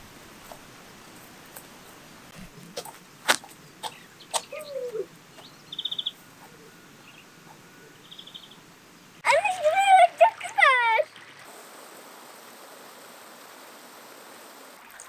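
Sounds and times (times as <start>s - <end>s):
bird falling call: 3.3s - 8.6s
bird high trill: 3.8s - 8.6s.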